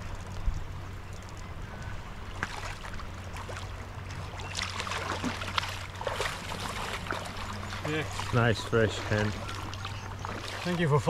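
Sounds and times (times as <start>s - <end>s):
fish splashing in water: 2.3s - 11.0s
river rushing: 2.4s - 11.0s.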